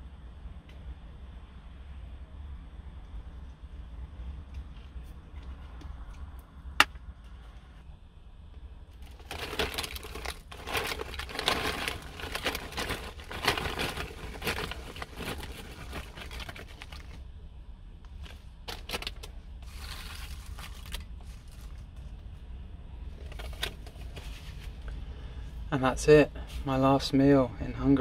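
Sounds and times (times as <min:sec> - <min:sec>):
hand rustling crisps: 0:09.0 - 0:17.2, 0:18.7 - 0:21.9
plastic packet crinkling: 0:09.0 - 0:17.2, 0:18.7 - 0:21.8.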